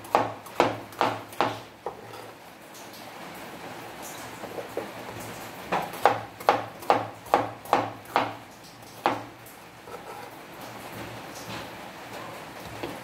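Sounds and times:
cleaver chopping on wooden board: 0.1 - 1.6, 5.8 - 8.4.

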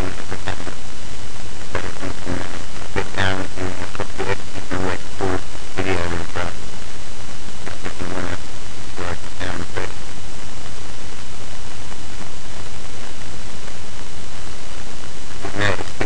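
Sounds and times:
muffled speech: 0.0 - 0.8, 1.7 - 6.6, 7.6 - 10.0, 15.4 - 16.0
microphone hiss: 0.0 - 16.0.

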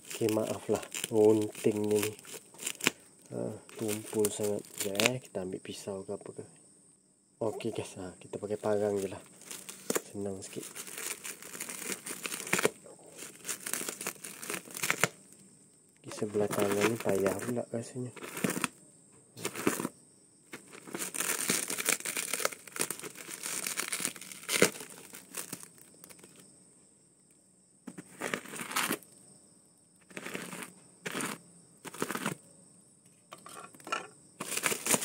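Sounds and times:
plastic wrapping crinkling and ripping: 0.0 - 3.0, 3.7 - 5.2, 8.7 - 15.2, 16.1 - 17.6, 18.2 - 18.7, 19.4 - 19.9, 20.6 - 26.4, 28.0 - 29.0, 30.1 - 32.4, 34.4 - 35.0.

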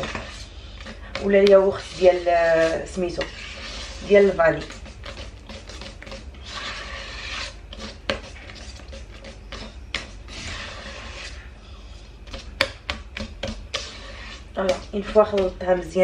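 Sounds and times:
whisk swishing through batter: 0.0 - 16.0
whisk clicking against metal bowl: 14.6 - 16.0.

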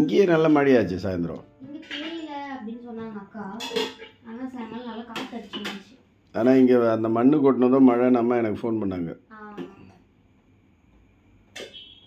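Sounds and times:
metal spoon clinking on pot: 3.6 - 4.1.

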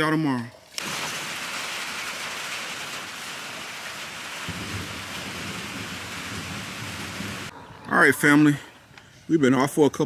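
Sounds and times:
steady rain: 0.8 - 7.5
low thunder rumble: 3.0 - 7.6.

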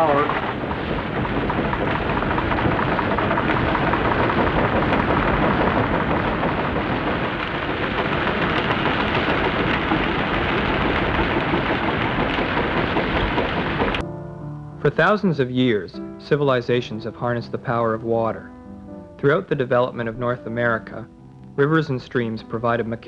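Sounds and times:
rushing water and machinery roar: 0.0 - 14.0.

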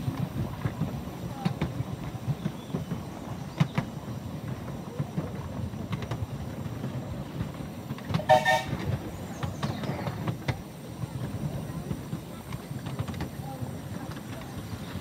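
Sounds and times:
miniature steam train rumble: 0.0 - 15.0
wheels clicking on rails: 0.0 - 15.0
steam train whistle: 8.1 - 8.9.

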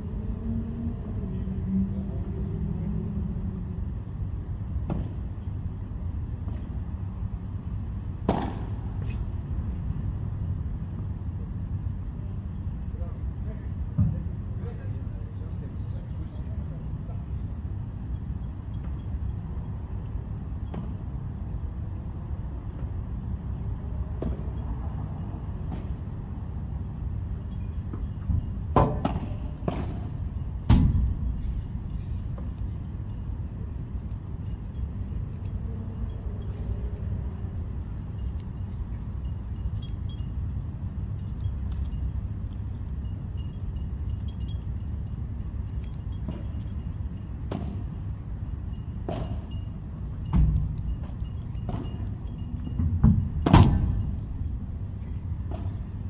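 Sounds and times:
ball struck by rackets: 8.3 - 8.8, 28.8 - 30.1, 49.0 - 49.5.

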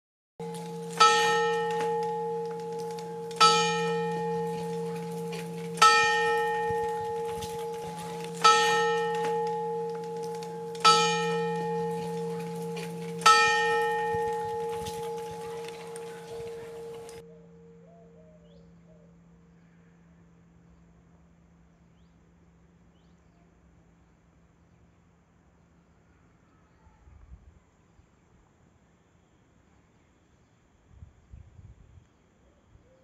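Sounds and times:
clock bell striking: 0.4 - 17.2.

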